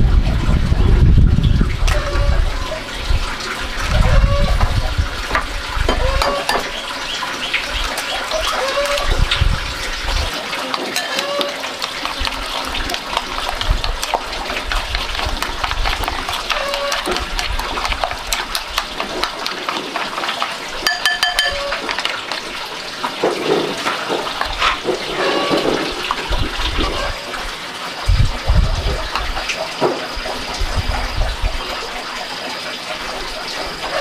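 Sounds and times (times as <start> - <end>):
wet slop of mixture: 5.3 - 27.5.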